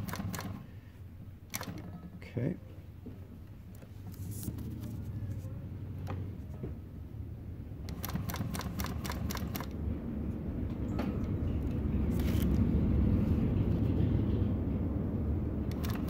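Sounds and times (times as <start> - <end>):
sharp sewing machine clicks: 0.0 - 0.6, 1.5 - 1.9, 7.9 - 9.8, 15.7 - 16.0
sewing machine humming: 0.0 - 0.7, 1.5 - 2.0, 7.8 - 9.8, 15.7 - 16.0.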